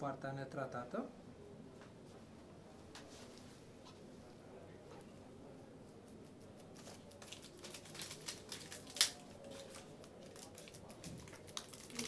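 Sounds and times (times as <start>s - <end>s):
light crinkling: 6.1s - 12.0s.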